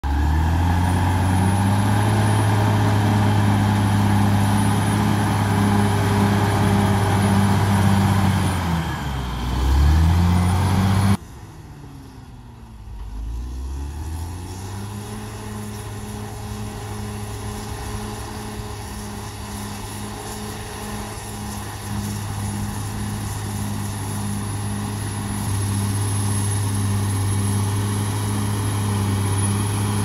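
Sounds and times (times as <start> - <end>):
bulldozer diesel engine: 0.0 - 30.0.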